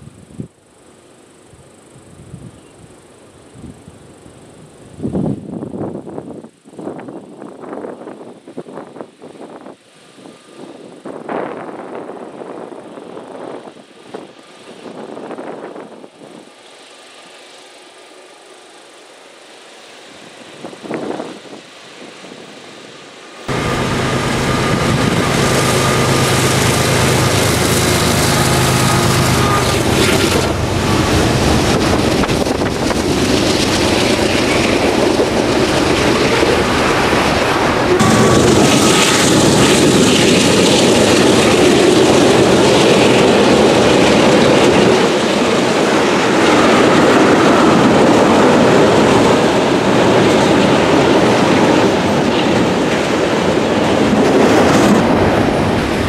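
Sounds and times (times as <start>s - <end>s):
diesel locomotive engines running: 0.0s - 56.0s
freight cars rumbling over rails: 23.4s - 56.0s.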